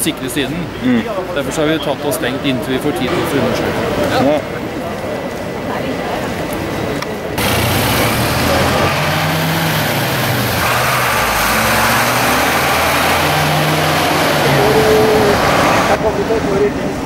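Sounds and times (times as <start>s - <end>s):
van engine driving past: 7.4s - 16.4s.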